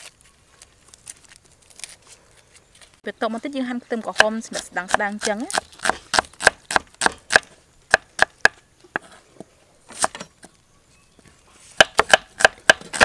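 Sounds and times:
knife chopping on wooden block: 0:11.8 - 0:13.0.

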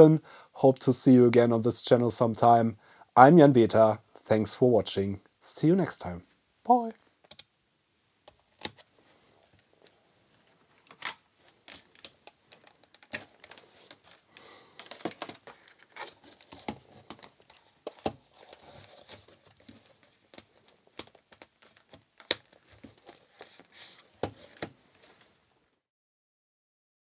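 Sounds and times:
pouch rustling: 0:10.4 - 0:25.3.

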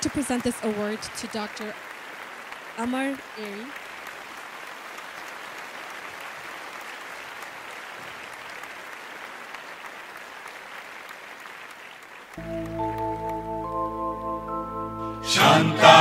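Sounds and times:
audience applauding: 0:00.0 - 0:16.0
music with held notes: 0:12.4 - 0:16.0.

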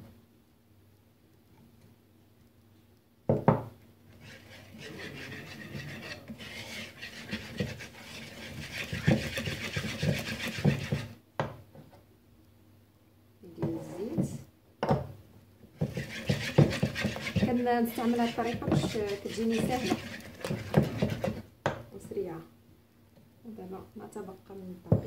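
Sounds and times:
wire whisk scraping wooden bowl: 0:04.1 - 0:11.2, 0:15.8 - 0:21.4.

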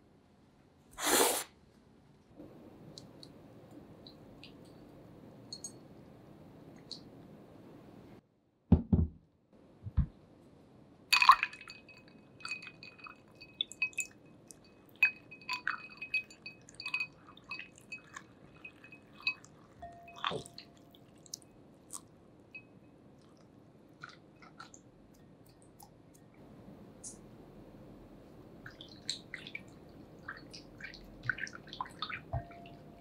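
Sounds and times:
utensil clinking against glass: 0:11.2 - 0:20.9.

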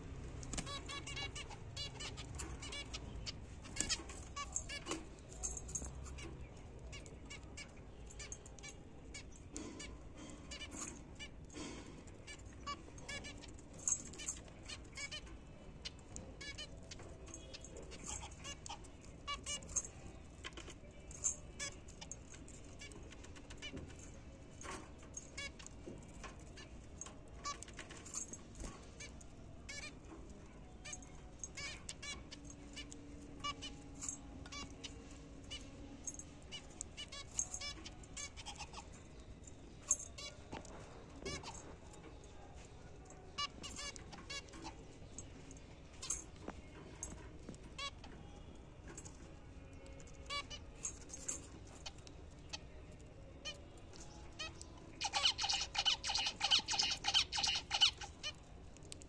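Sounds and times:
beaks pecking metal bowl: 0:00.4 - 0:41.8, 0:48.9 - 0:59.0
finches calling with nasal beeps: 0:54.5 - 0:58.3.

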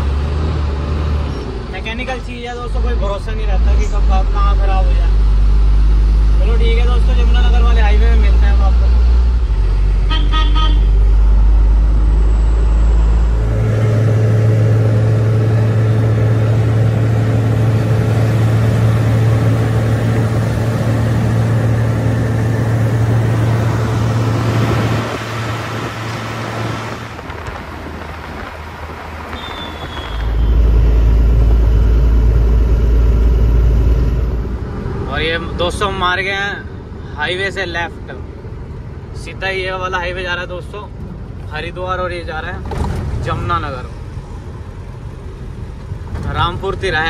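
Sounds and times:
road noise: 0:00.0 - 0:47.0
truck diesel engine: 0:00.0 - 0:47.0
horn toot: 0:10.0 - 0:11.0.

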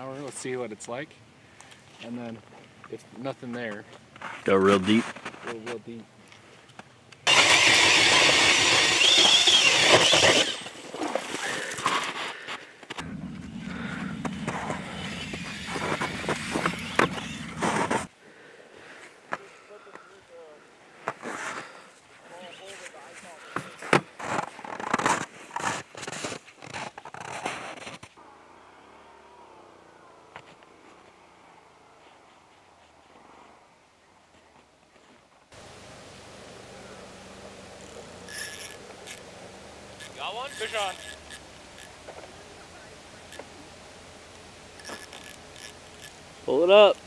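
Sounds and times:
power ice auger boring: 0:07.3 - 0:12.2, 0:13.0 - 0:18.1, 0:36.5 - 0:42.5, 0:44.7 - 0:47.0
footsteps crunching in snow: 0:10.0 - 0:18.1.

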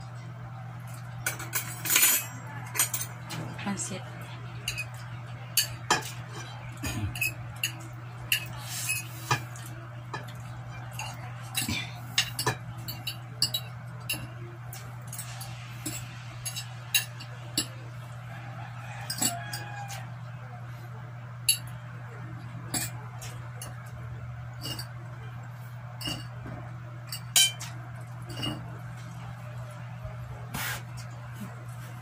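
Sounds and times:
cutlery clinking on plates: 0:01.2 - 0:03.5, 0:04.6 - 0:17.8, 0:19.0 - 0:20.1, 0:22.7 - 0:23.9, 0:24.6 - 0:25.0, 0:26.0 - 0:28.7.

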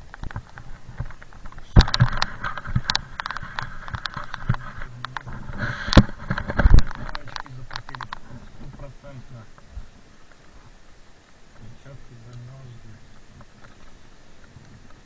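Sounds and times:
loud thumps: 0:00.0 - 0:08.9.

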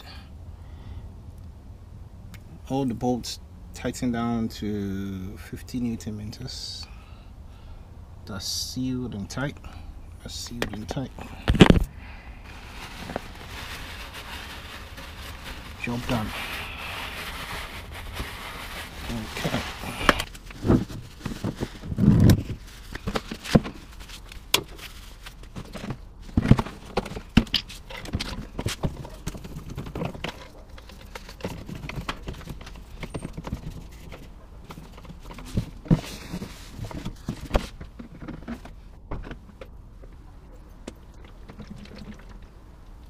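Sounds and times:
tools and plastic containers clattering: 0:25.4 - 0:39.6.

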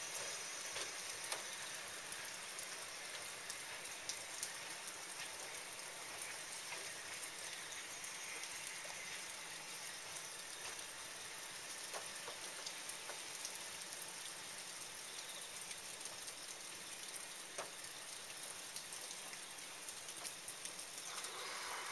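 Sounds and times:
rain drops ticking: 0:00.0 - 0:21.9
rain hiss: 0:00.0 - 0:21.9.

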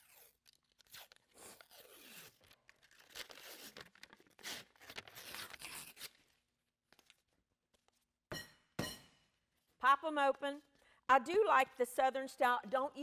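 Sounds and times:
paper label tearing and crinkling: 0:00.0 - 0:06.5.

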